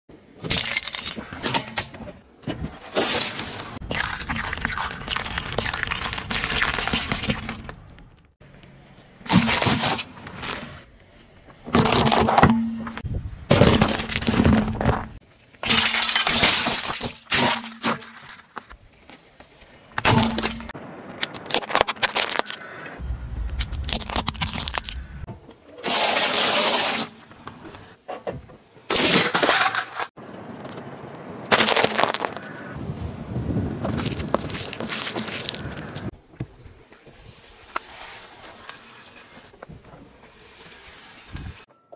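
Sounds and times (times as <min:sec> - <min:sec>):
tyre crushing objects on asphalt: 0:13.5 - 0:18.8, 0:31.5 - 0:32.6, 0:33.7 - 0:36.5
low rumble: 0:23.0 - 0:25.4.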